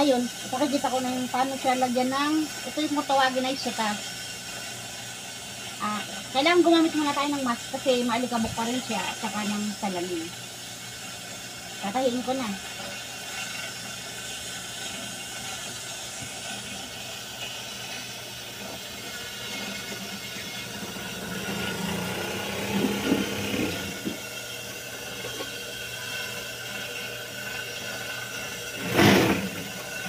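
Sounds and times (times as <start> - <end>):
sewing machine running: 20.8 - 24.2, 28.8 - 29.7.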